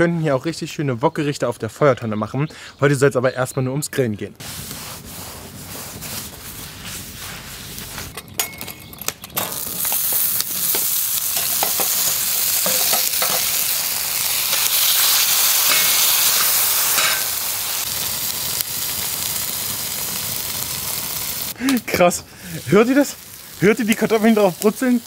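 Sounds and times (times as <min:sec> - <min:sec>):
paper towel rubbing plate: 0:04.4 - 0:08.1
potatoes sizzling on grill: 0:09.3 - 0:25.0.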